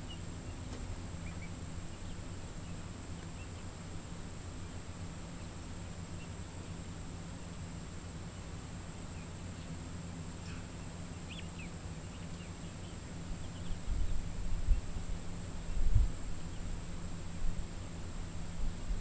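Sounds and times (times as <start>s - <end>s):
insects droning: 0.0s - 19.0s
bird chirps: 1.2s - 2.8s, 10.4s - 14.1s.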